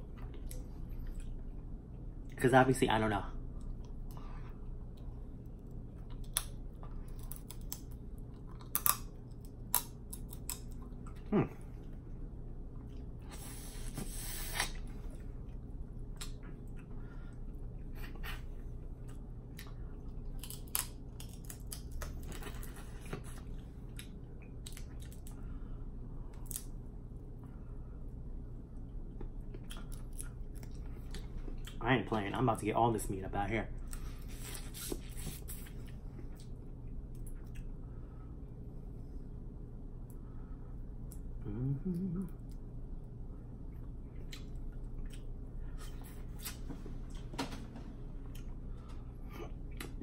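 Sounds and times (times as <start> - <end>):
chewing: 43.7 - 46.6.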